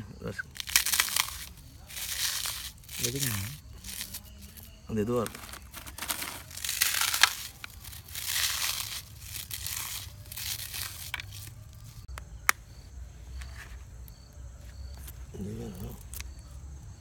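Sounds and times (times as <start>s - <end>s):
hands squeezing crumbly mixture: 0.6s - 12.1s.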